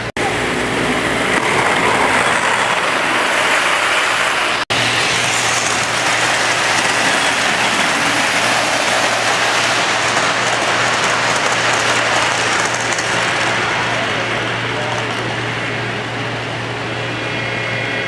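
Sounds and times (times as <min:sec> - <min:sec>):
model train wheels rattling on rails: 0:02.0 - 0:14.1.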